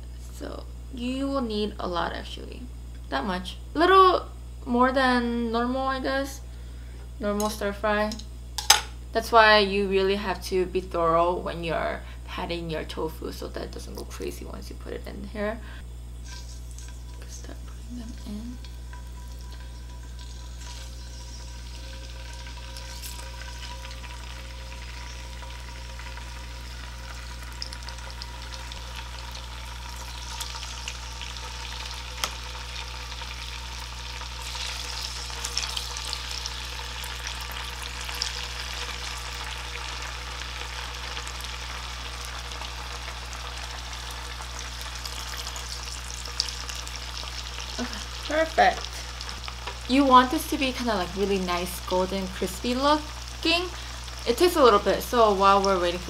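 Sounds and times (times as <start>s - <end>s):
tofu sizzling in oil: 16.1s - 56.0s.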